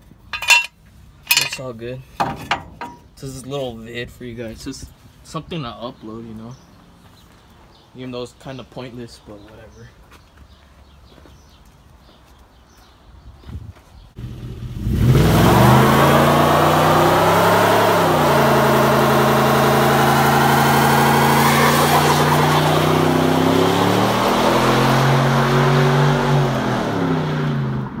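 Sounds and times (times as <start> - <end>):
tyres squealing: 0.3 - 3.3, 19.8 - 24.6
engine revving hard: 14.2 - 27.9.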